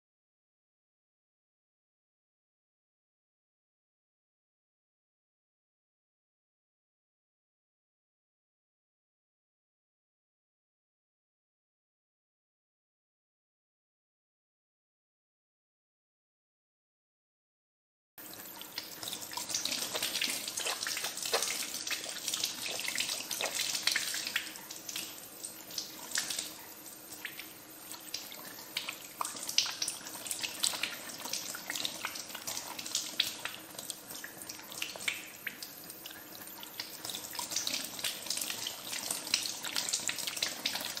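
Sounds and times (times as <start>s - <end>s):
tap water running and splashing: 18.2s - 41.0s.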